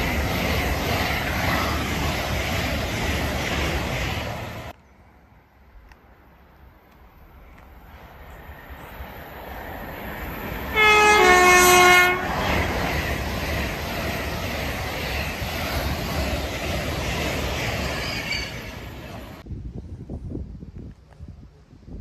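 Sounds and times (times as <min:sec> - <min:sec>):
train passing at speed: 0:00.0 - 0:19.6
two-tone train horn: 0:10.7 - 0:12.5.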